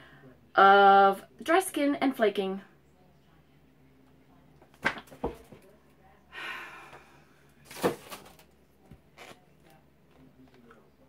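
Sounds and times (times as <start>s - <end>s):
breathy rush of air: 6.3s - 7.4s.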